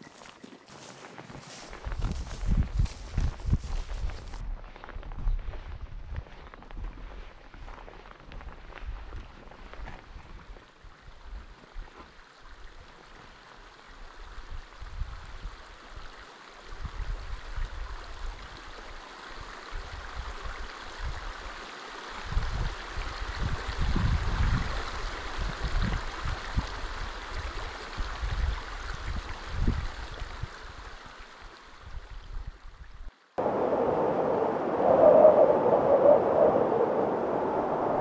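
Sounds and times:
wind buffeting microphone: 0:01.4 - 0:04.5, 0:22.3 - 0:24.8, 0:33.4 - 0:38.0
steady rushing hiss: 0:33.4 - 0:38.0.

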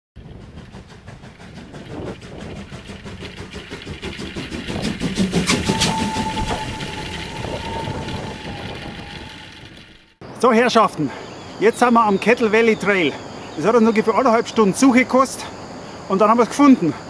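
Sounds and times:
rhythmic mechanical clatter: 0:00.2 - 0:10.2
high whistle-like tone: 0:05.3 - 0:10.1.

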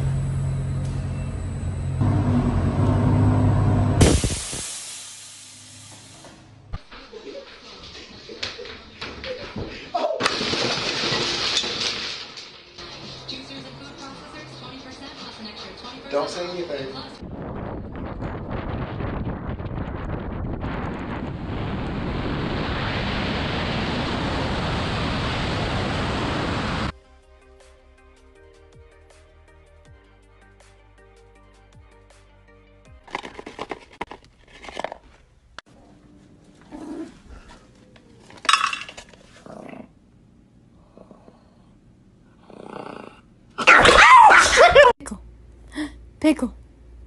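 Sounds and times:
quiet music: 0:12.8 - 0:17.1
wind rushing over microphone: 0:17.2 - 0:26.9
small dog crying: 0:43.6 - 0:44.9.

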